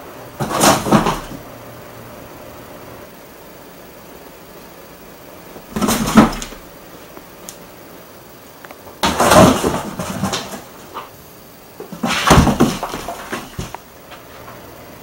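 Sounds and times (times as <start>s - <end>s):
cat thumping in cardboard boxes: 0.4s - 1.4s, 5.7s - 6.6s, 9.0s - 11.0s, 11.8s - 13.7s.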